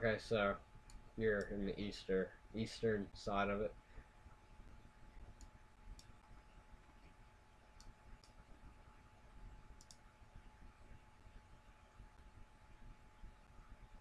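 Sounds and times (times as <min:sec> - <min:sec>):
faint steady tone: 0:00.0 - 0:14.0
faint computer mouse clicks: 0:05.4 - 0:06.4, 0:07.8 - 0:08.4, 0:09.8 - 0:10.0.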